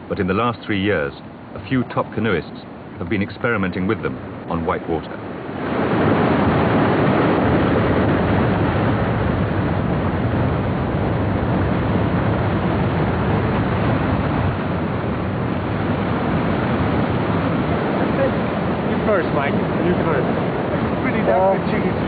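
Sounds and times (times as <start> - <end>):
river rushing over rocks: 14.8 - 22.0.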